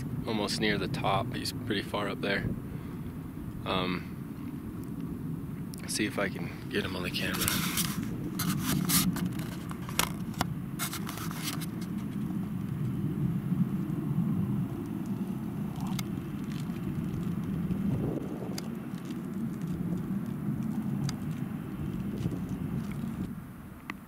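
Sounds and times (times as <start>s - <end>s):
wind rumble on microphone: 0.0s - 24.0s.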